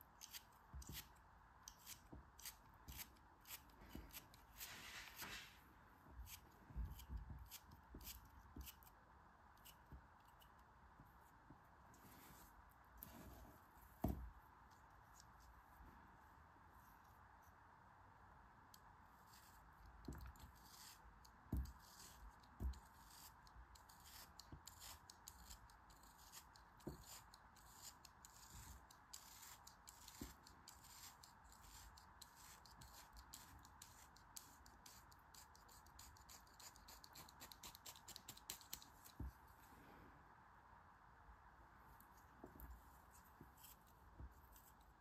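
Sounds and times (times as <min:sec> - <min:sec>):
faint steady hiss: 0:00.0 - 0:45.0.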